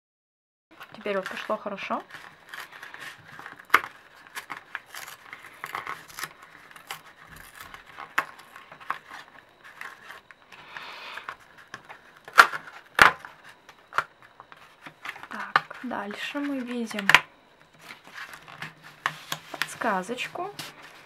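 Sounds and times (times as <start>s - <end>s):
paper rustling and crackling: 0.8s - 21.0s.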